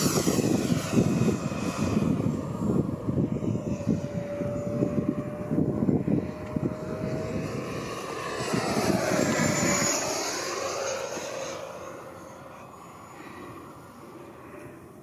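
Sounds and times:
wind buffeting microphone: 0.0s - 11.5s
model jet fan whining: 0.0s - 15.0s.

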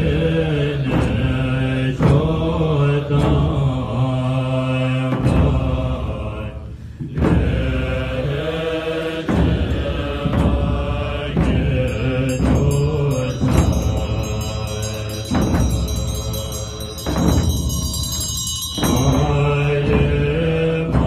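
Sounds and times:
frame drums struck: 0.0s - 4.0s, 9.2s - 21.0s
monks chanting in low voices: 0.0s - 21.0s.

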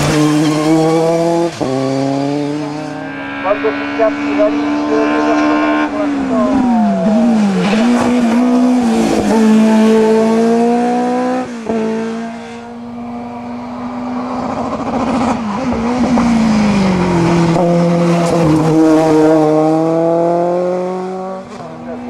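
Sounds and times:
race car engine revving high: 0.0s - 22.0s.

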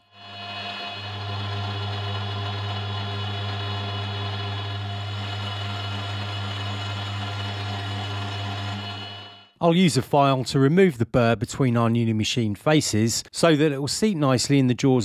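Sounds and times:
milling machine humming: 0.1s - 9.5s.

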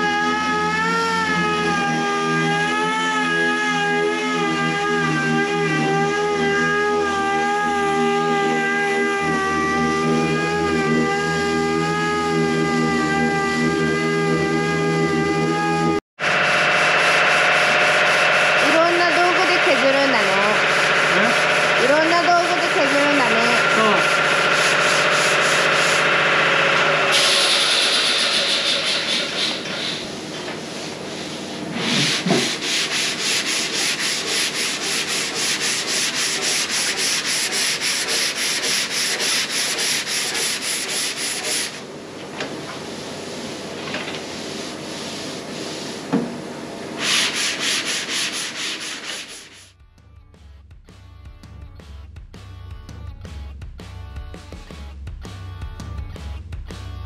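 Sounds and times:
sanding car bodywork: 1.2s - 15.8s, 17.0s - 41.9s, 42.8s - 46.1s, 47.0s - 49.7s.

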